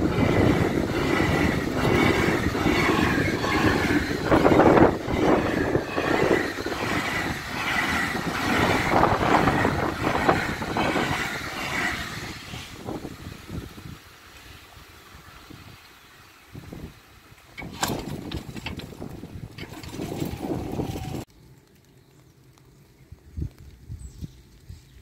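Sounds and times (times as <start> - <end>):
freight train rumbling past: 0.0 - 15.8, 16.4 - 21.3
wheels knocking over rail joints: 17.4 - 21.6.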